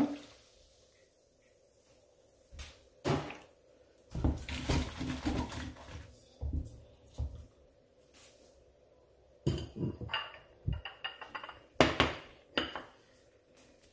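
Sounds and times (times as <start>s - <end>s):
pots and utensils clattering: 9.5s - 12.9s.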